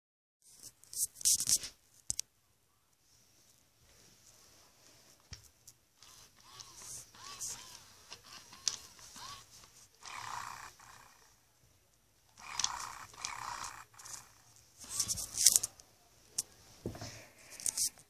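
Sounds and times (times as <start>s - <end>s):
electronic toy cat calls: 6.0s - 11.3s, 12.4s - 15.4s.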